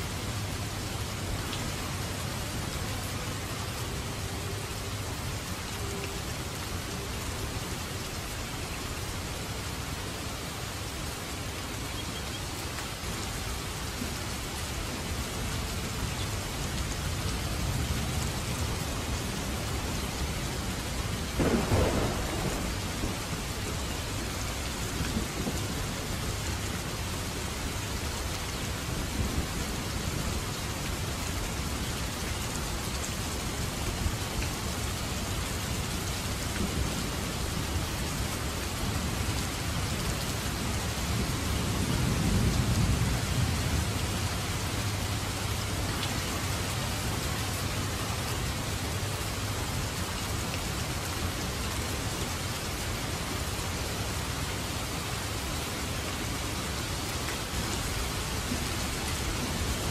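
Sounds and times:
rain splashing on wet ground: 0:00.0 - 0:59.9
thunder clap: 0:21.4 - 0:23.3
low thunder rumble: 0:21.4 - 0:23.9.

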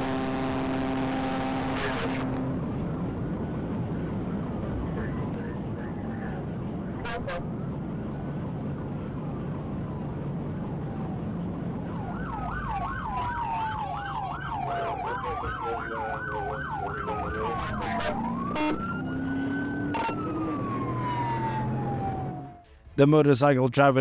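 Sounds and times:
police siren wailing: 0:00.0 - 0:02.8, 0:06.7 - 0:22.7
car engine and road noise: 0:00.0 - 0:23.4
police siren yelping: 0:11.8 - 0:22.6.

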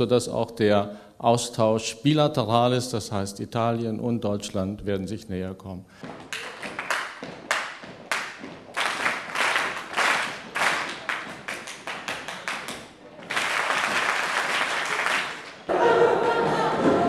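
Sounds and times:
group of people clapping: 0:06.1 - 0:17.0.

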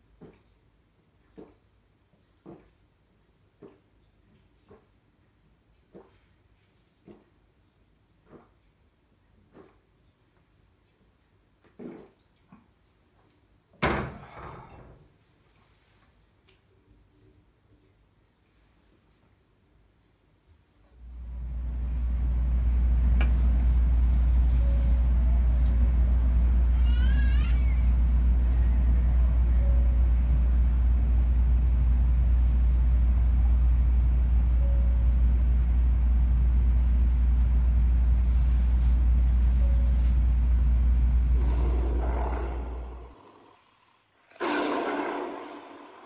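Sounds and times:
train car rumbling at speed: 0:21.0 - 0:41.9.

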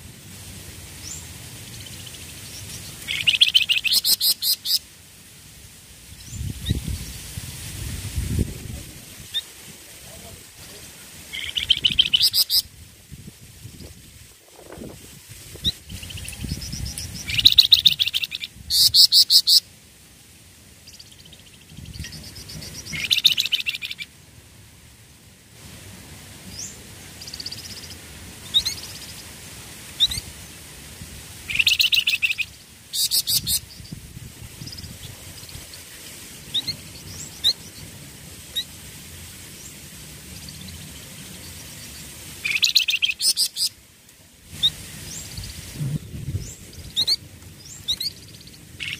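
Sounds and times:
bird chirps: 0:01.8 - 0:04.8, 0:11.3 - 0:12.7, 0:20.9 - 0:24.1, 0:31.5 - 0:34.0, 0:41.4 - 0:43.7.

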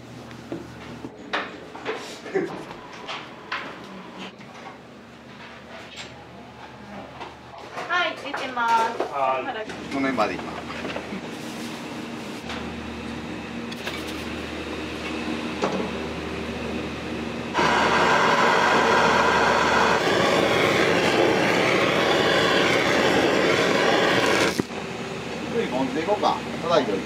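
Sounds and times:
kitchen equipment humming: 0:00.0 - 0:27.0
loud rushing hiss: 0:17.5 - 0:24.7.

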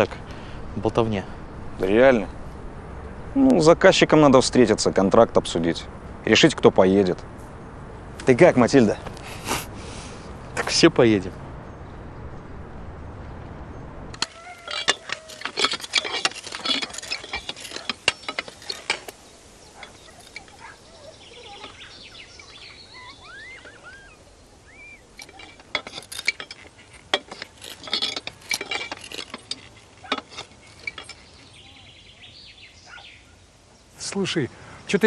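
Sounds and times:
bird chirping: 0:13.6 - 0:34.0
climbing irons clanking on pole: 0:14.2 - 0:31.9.

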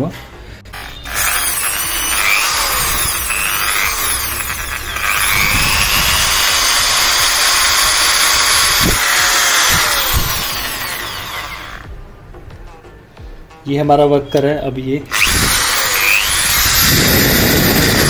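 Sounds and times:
impact drill motor whining: 0:00.8 - 0:11.9, 0:15.1 - 0:18.0.

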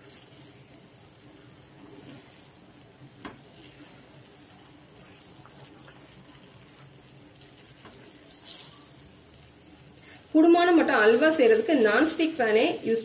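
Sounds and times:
spatula stirring batter in pan: 0:00.0 - 0:10.3.

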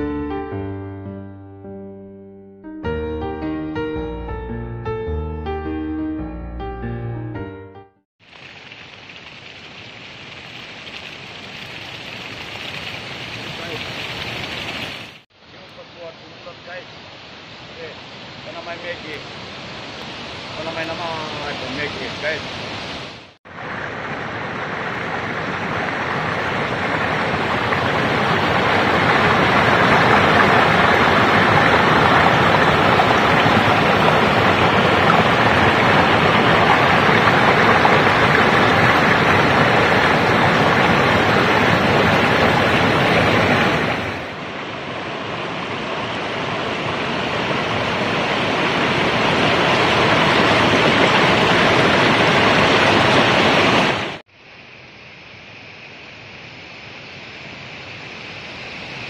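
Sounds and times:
waterfall rushing over rocks: 0:08.3 - 0:54.2.

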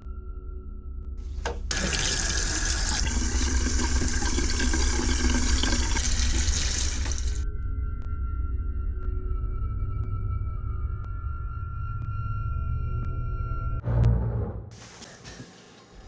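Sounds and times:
sink tap running: 0:01.4 - 0:07.4.

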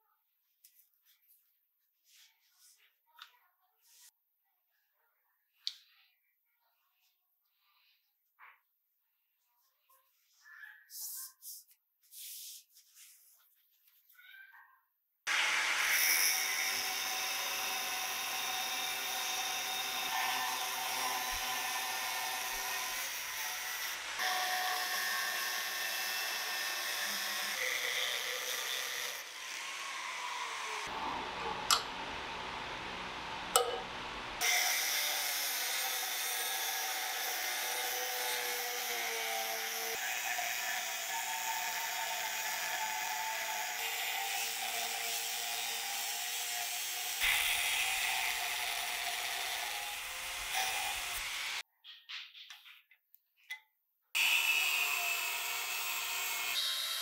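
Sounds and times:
angle grinder cutting steel: 0:15.3 - 0:51.6, 0:54.2 - 0:57.0.

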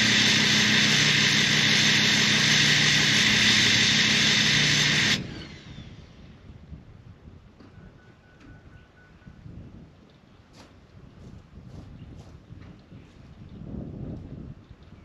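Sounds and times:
machine drone with hiss: 0:00.0 - 0:06.2
faint outdoor background: 0:00.0 - 0:15.0.

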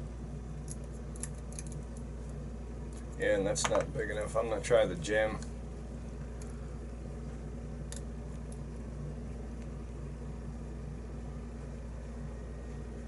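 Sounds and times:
low appliance hum: 0:00.0 - 0:13.0.

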